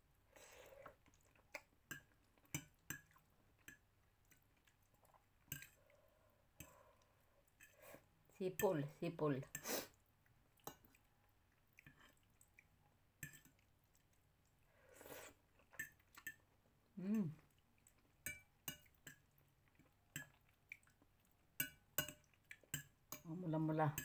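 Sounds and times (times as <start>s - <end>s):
chewing: 0.5s - 8.0s, 9.9s - 16.7s, 17.3s - 22.9s
person humming: 17.0s - 17.4s.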